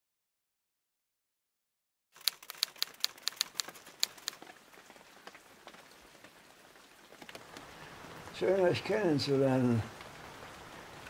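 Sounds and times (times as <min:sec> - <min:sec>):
typewriter keys clacking: 0:02.2 - 0:04.4
faint steady hiss: 0:02.6 - 0:11.0.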